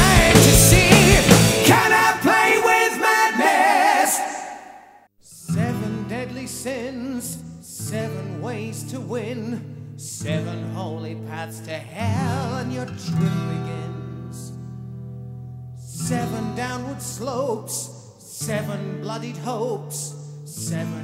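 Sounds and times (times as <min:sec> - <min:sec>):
heavy metal song with singing: 0:00.0 - 0:04.8.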